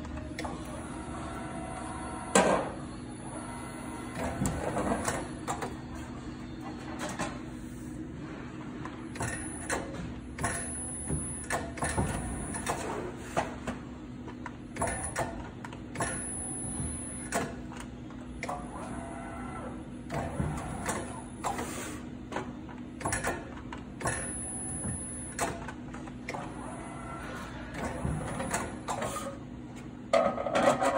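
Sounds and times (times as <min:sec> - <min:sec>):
high machine whine: 0:00.0 - 0:12.7
machine steady hum: 0:00.0 - 0:30.9
machine clicks and clunks: 0:04.1 - 0:05.8, 0:06.7 - 0:07.4, 0:08.8 - 0:19.0, 0:20.0 - 0:26.9, 0:27.7 - 0:30.9.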